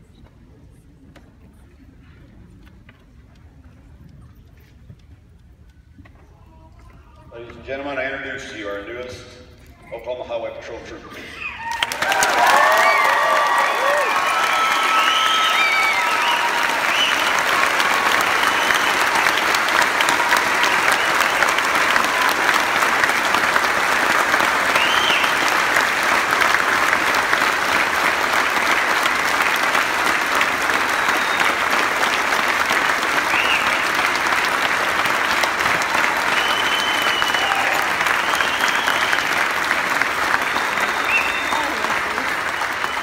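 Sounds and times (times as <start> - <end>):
audience applauding: 11.6 - 43.0.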